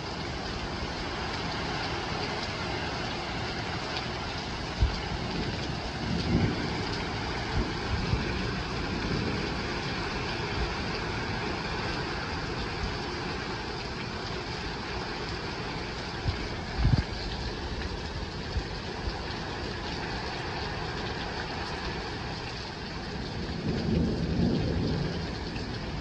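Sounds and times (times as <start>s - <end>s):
heavy rain: 0.0s - 26.0s
thunder rumble: 3.7s - 14.3s, 22.8s - 26.0s.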